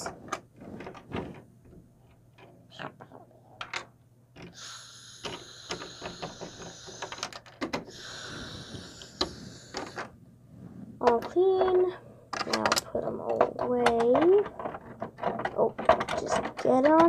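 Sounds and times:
steady hiss: 0:04.5 - 0:11.1
plastic toy trays clattering: 0:11.0 - 0:17.0.

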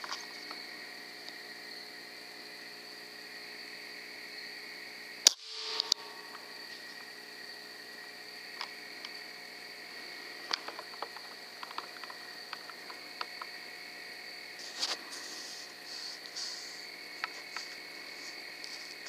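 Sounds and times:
night insects chirring: 0:00.0 - 0:19.0
small click: 0:05.2 - 0:06.1.

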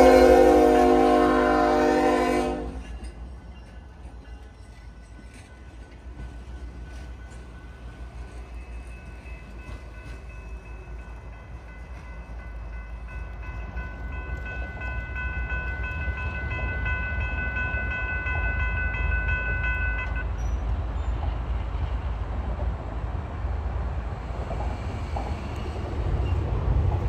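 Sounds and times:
train rumbling along track: 0:00.0 - 0:27.0.

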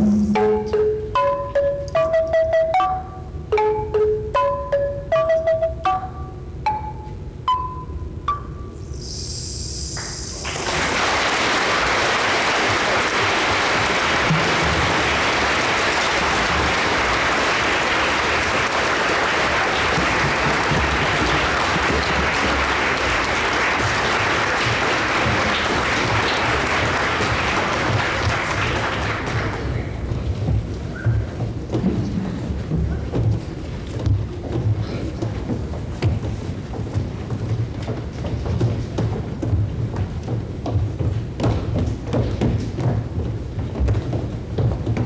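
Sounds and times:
ringing percussion chord: 0:00.0 - 0:08.9
audience applause: 0:10.0 - 0:30.0.

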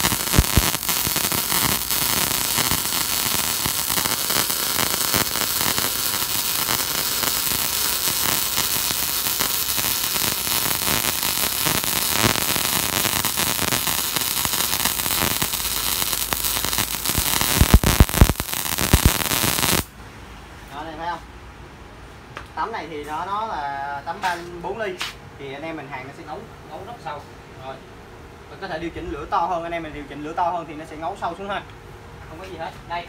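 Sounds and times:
sharp welding pops: 0:00.0 - 0:19.9
welding arc crackling hiss: 0:00.0 - 0:19.9.

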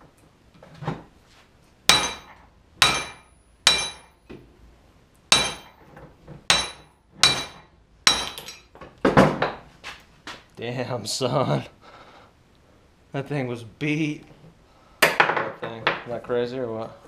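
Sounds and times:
sledgehammer striking metal: 0:01.9 - 0:04.2, 0:05.3 - 0:05.8, 0:06.5 - 0:08.6.

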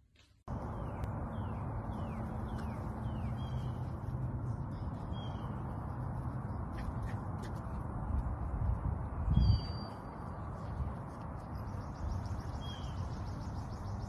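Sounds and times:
bird chirping: 0:00.5 - 0:07.1, 0:09.3 - 0:10.7, 0:11.4 - 0:14.0
low outdoor rumble: 0:00.5 - 0:14.0.

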